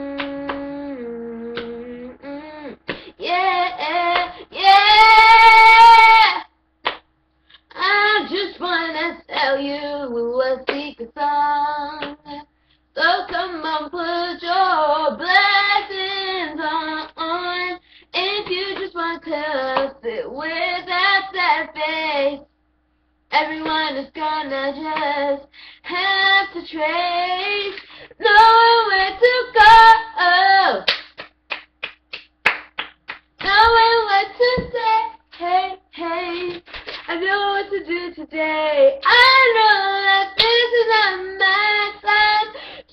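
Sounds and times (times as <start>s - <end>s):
girl singing unaccompanied: 0.0s - 6.5s, 7.7s - 22.5s, 23.3s - 30.9s, 33.4s - 42.9s
hand claps: 0.2s - 0.7s, 6.8s - 7.1s, 30.8s - 33.8s.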